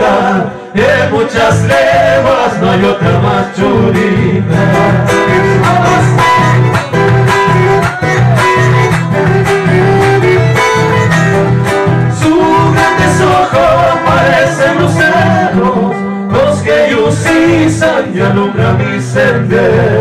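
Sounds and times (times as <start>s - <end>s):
guitars strumming: 0.0s - 20.0s
accordion playing: 4.5s - 15.7s.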